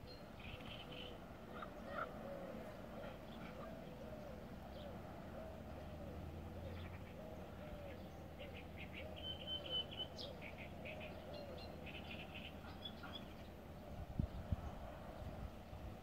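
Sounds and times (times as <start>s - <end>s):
bird chirps: 6.6s - 13.6s.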